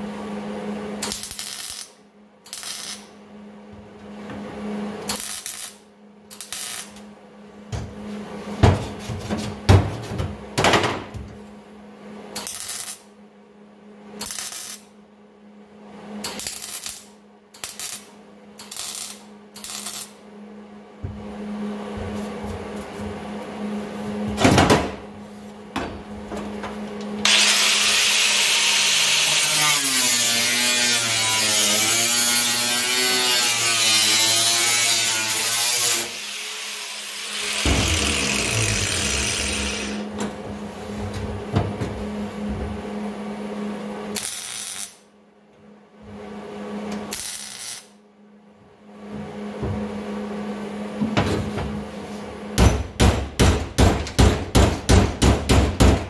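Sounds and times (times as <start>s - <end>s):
power tool working sheet metal: 27.2s - 40.1s.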